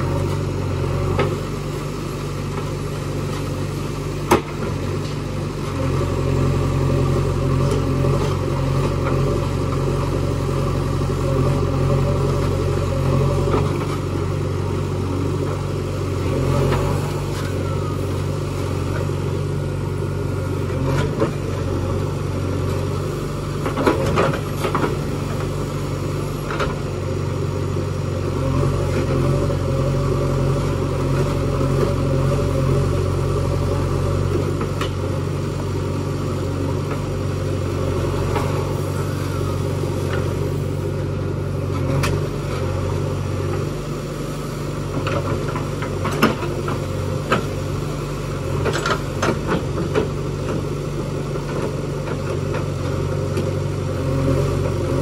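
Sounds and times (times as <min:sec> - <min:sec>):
diesel engine running under load: 0:00.0 - 0:55.0.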